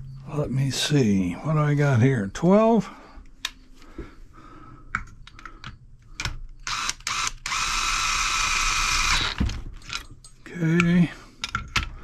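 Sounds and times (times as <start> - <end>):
cordless drill motor whine: 6.6 - 9.5.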